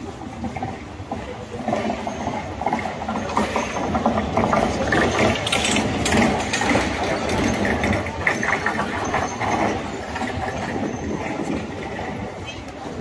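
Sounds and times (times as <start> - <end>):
street noise: 0.0 - 13.0
rapid mechanical clattering: 0.2 - 13.0.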